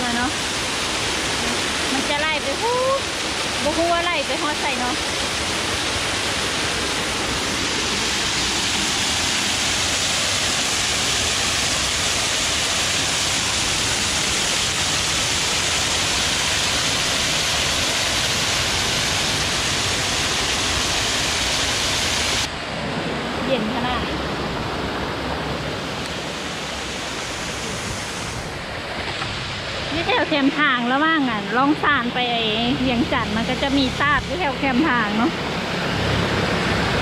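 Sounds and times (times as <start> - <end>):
waterfall splashing over rocks: 0.0 - 22.5, 25.8 - 31.2.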